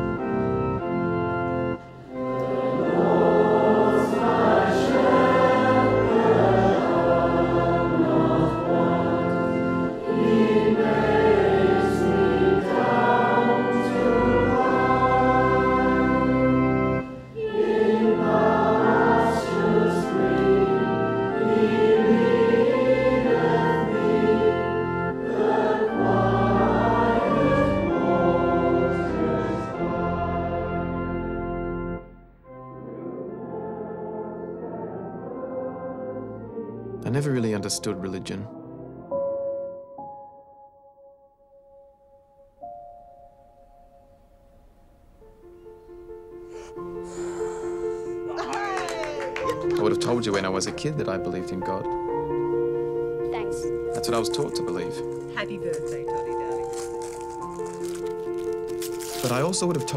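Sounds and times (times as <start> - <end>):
choir singing a hymn: 0.0 - 39.0, 49.1 - 55.2
organ playing held chords: 0.0 - 41.1, 42.6 - 59.9.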